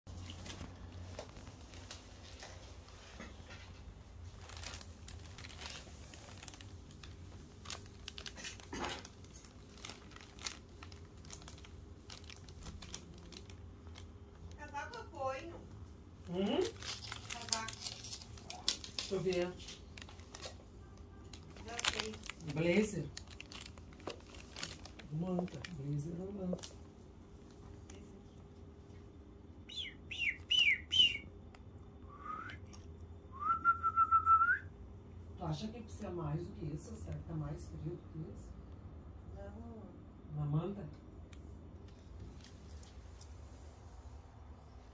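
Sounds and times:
plastic bag crinkling: 0:04.2 - 0:15.0, 0:16.2 - 0:26.8
person whistling: 0:29.8 - 0:31.2, 0:32.1 - 0:32.7, 0:33.3 - 0:34.7.

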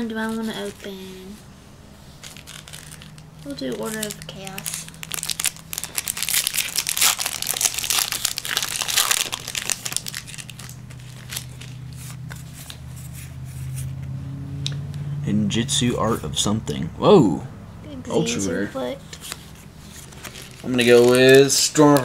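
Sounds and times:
foil wrapper crinkling and tearing: 0:02.2 - 0:12.9, 0:19.2 - 0:22.0
cards being flipped through: 0:02.2 - 0:14.0, 0:19.0 - 0:22.0.

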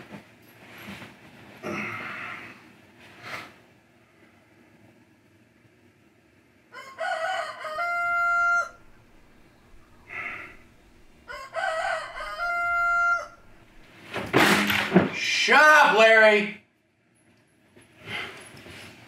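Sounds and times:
rooster crowing: 0:06.7 - 0:13.8.

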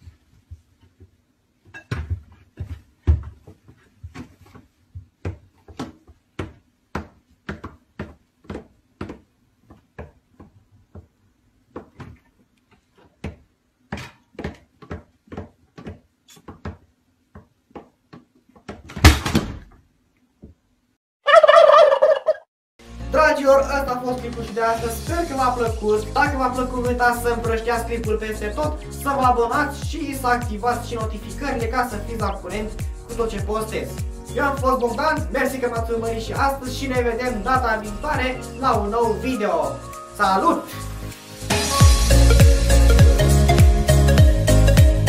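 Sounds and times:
cabinet door banging shut: 0:18.9 - 0:19.8.

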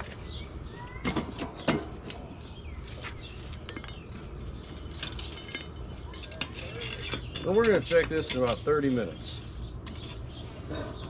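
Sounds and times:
cast-iron pot clanking: 0:04.8 - 0:08.7.

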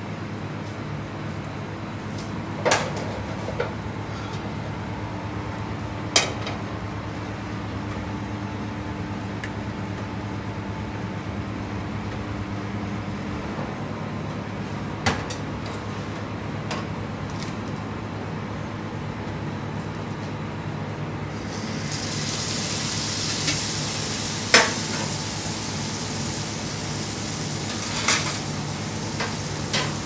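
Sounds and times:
kitchen hum: 0:21.0 - 0:30.0.

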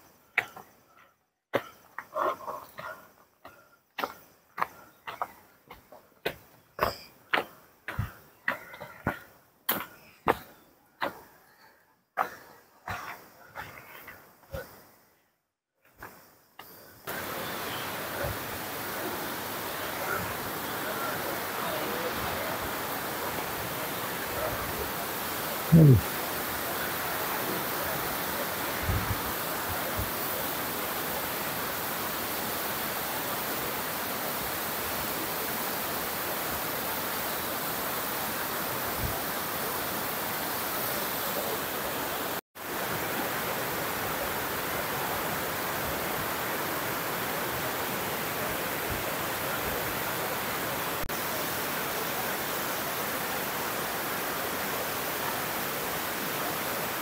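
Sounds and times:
waterfall rushing: 0:17.1 - 0:57.0.

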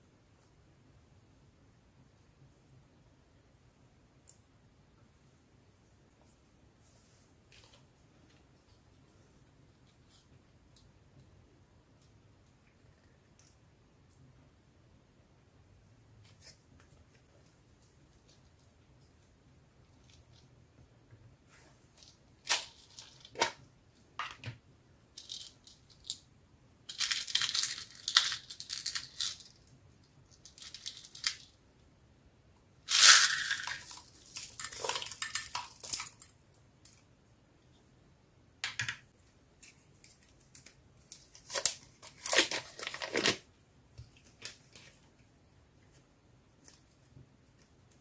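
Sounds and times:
plastic beads rattling in case: 0:25.2 - 0:26.2, 0:26.9 - 0:29.7, 0:30.3 - 0:31.6, 0:32.9 - 0:36.3.

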